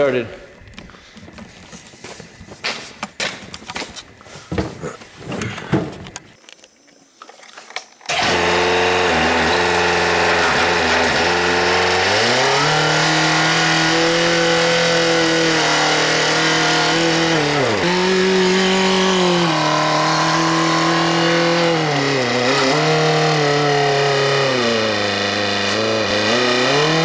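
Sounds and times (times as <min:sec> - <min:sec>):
telehandler engine revving: 0:08.1 - 0:27.0.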